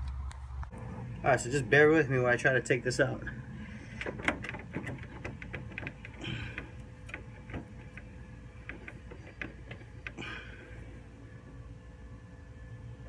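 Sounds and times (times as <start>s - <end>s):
radiator clicks and knocks: 3.6s - 10.6s.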